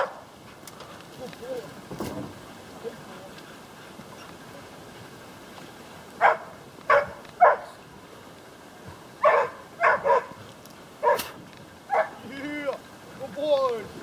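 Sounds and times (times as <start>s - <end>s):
dog barking: 0.0s - 0.2s, 6.2s - 7.8s, 9.2s - 10.4s, 11.0s - 12.2s.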